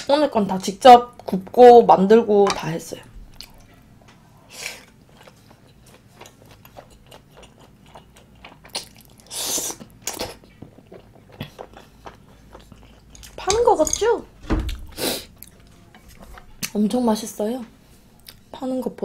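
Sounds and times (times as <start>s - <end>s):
close chewing and biting: 3.3s - 3.8s, 4.5s - 13.4s.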